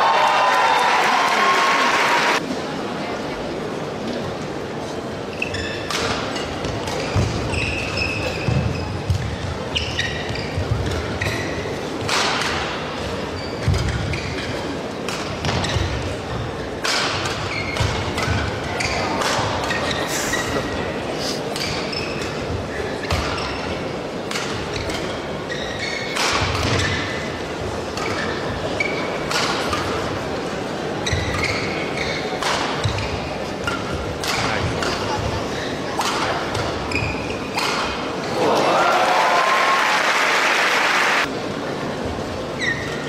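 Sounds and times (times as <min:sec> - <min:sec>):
crowd noise in large arena: 0:00.0 - 0:43.0
court shoes squeaking: 0:05.0 - 0:38.4, 0:42.0 - 0:43.0
racket hitting shuttlecock: 0:05.8 - 0:09.5, 0:10.6 - 0:16.1, 0:16.7 - 0:20.0, 0:21.5 - 0:23.6, 0:24.2 - 0:25.2, 0:25.9 - 0:27.3, 0:29.2 - 0:30.1, 0:31.1 - 0:35.1, 0:36.0 - 0:38.2.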